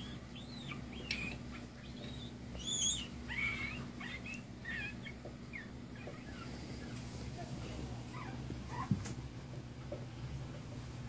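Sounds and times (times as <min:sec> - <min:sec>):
puppy squeaks and whimpers: 0:00.0 - 0:07.1, 0:08.1 - 0:09.0.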